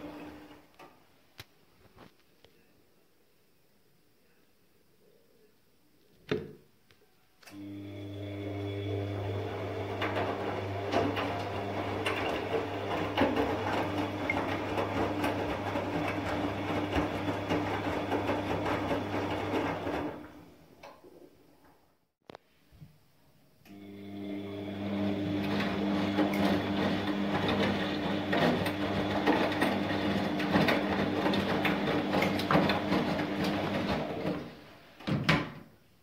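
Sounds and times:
washing machine humming: 0.0 - 0.6, 7.5 - 20.8, 23.7 - 35.0
rattling and splashing water: 9.9 - 20.0.

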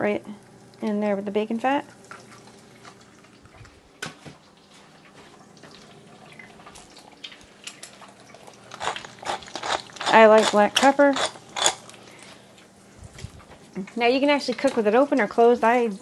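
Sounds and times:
egg sizzling in grease: 4.4 - 12.3
pepper mill grinding: 8.7 - 12.0.

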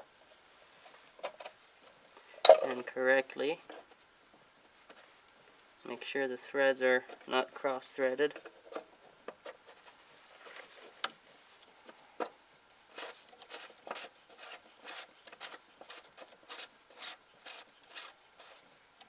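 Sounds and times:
cap scraping on threads: 12.9 - 18.8.

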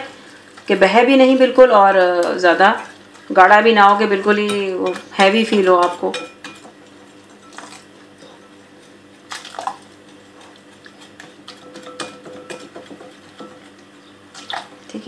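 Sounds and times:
whisk beating batter in glass bowl: 9.6 - 13.8.

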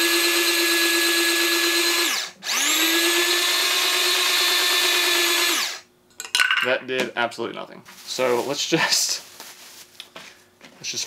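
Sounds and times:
mini food chopper motor whining: 0.0 - 5.8.

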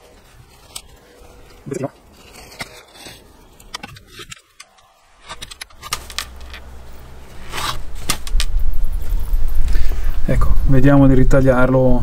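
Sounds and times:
hands handling potting materials: 0.0 - 10.0
low hum: 0.0 - 12.0.

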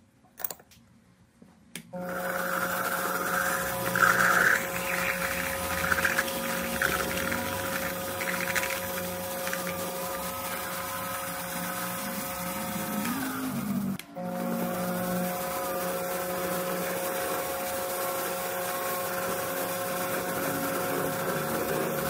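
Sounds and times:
drill cutting metal: 2.0 - 22.0
lathe motor humming: 2.0 - 22.0.

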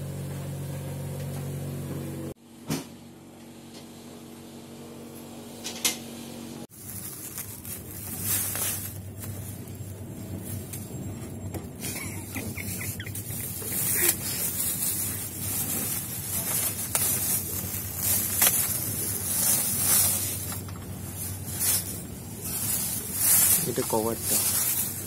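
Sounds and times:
steady low hum: 0.0 - 25.0
plastic wrapping crinkling: 6.7 - 11.0, 12.0 - 25.0.

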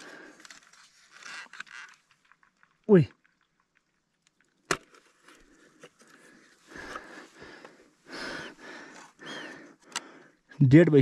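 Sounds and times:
man breathing heavily: 0.0 - 0.7, 5.4 - 10.6.

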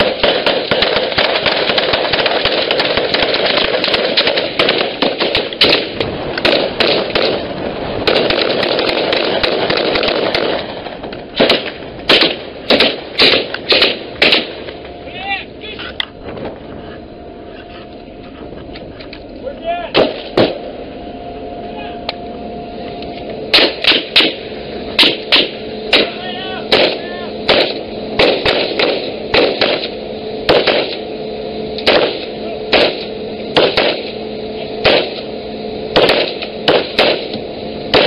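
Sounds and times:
rifle shots: 0.0 - 10.8, 11.4 - 14.7, 19.9 - 20.6, 23.5 - 24.4, 25.0 - 31.0, 31.8 - 34.2, 34.8 - 35.3, 36.0 - 38.0
steady hum: 0.0 - 38.0.

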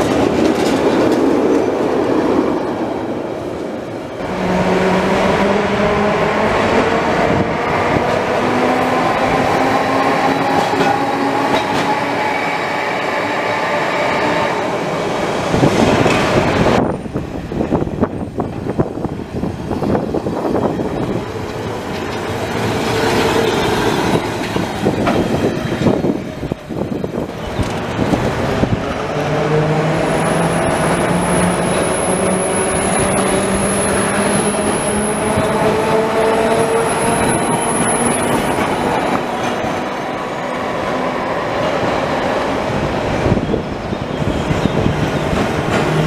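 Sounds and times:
tram wheels clattering on rails: 0.0 - 2.8, 6.4 - 12.4, 14.7 - 46.0
tram motor whine rising: 27.3 - 42.0.

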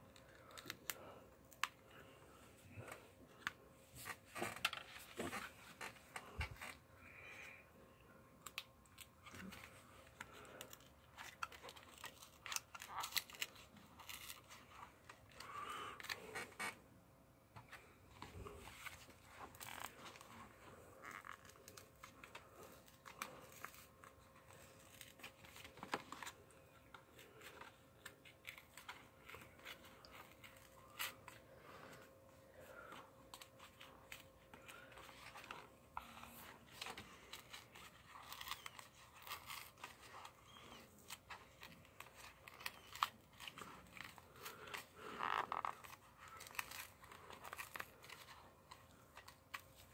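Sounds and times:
packaging crinkling and tearing: 8.4 - 16.6, 32.8 - 49.9.

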